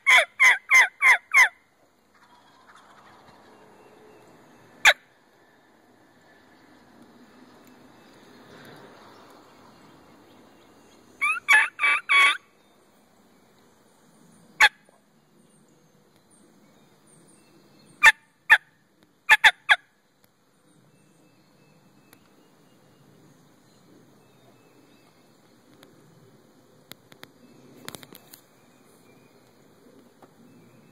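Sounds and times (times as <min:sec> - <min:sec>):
turkey call yelps: 0:00.0 - 0:03.4, 0:11.2 - 0:12.4, 0:14.6 - 0:14.9, 0:18.0 - 0:18.6, 0:19.3 - 0:19.9
turkey call clucks: 0:00.0 - 0:03.5, 0:11.2 - 0:12.4, 0:14.6 - 0:14.8, 0:19.3 - 0:19.9.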